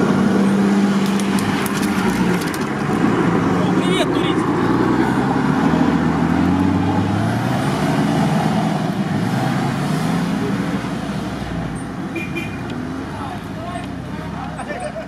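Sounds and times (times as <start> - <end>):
suv engine under load: 0.0 - 3.6.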